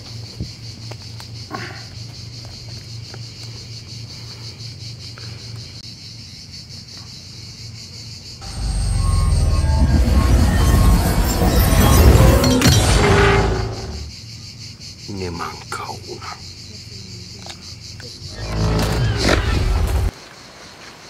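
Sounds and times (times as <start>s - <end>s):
insects droning: 0.0s - 21.0s
loud deep rumble: 8.4s - 14.1s
low pulsing hum: 8.4s - 14.1s.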